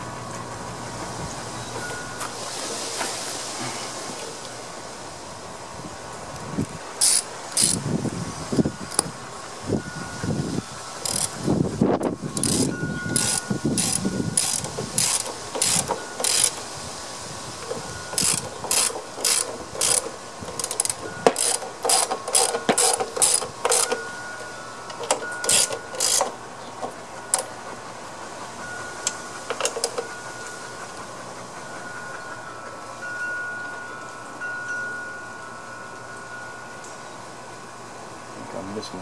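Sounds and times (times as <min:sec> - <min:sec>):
socket ratchet wrench clicking: 0:07.0 - 0:07.8, 0:08.9 - 0:09.1, 0:11.0 - 0:11.4, 0:12.4 - 0:16.6, 0:17.6 - 0:24.0, 0:24.9 - 0:26.4.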